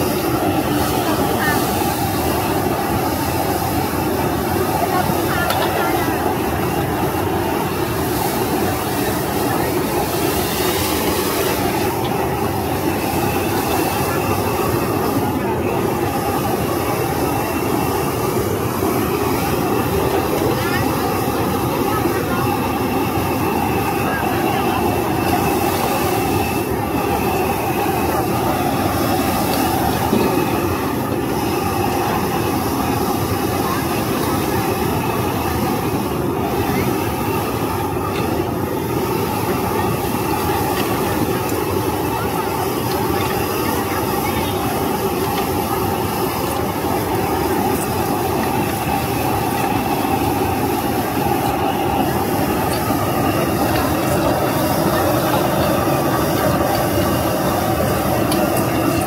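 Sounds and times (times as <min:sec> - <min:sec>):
kitchen exhaust fans: 0:00.0 - 0:59.0
wok burners roaring: 0:00.0 - 0:59.0.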